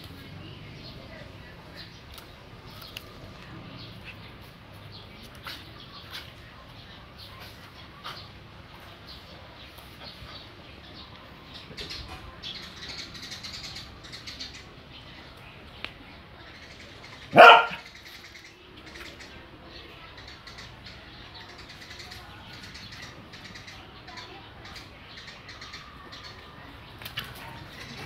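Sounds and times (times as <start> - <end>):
dog barking: 17.3 - 17.8.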